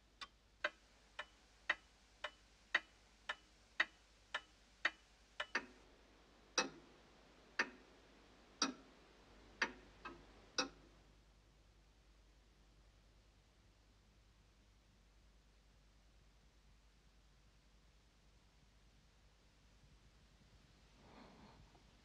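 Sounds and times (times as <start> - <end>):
loud full clock tick: 0.2 - 5.8, 6.6 - 6.8, 7.6 - 7.8, 8.6 - 8.8, 9.6 - 10.8.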